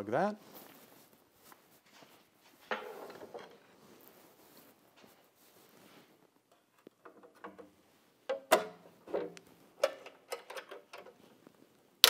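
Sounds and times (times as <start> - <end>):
metal cover clacking and knocking: 8.3 - 11.1.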